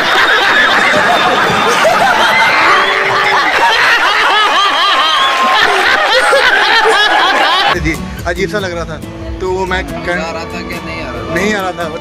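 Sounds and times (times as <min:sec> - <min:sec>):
group of people laughing: 0:00.0 - 0:07.8.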